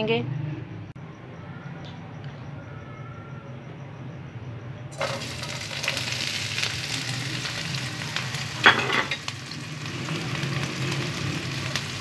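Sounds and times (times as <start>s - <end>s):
vegetables sizzling in oil: 4.9s - 12.0s.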